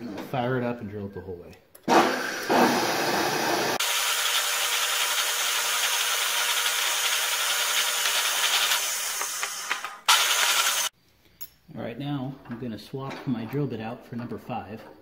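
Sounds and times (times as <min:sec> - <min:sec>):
drill press drilling aluminum: 0:03.8 - 0:10.9.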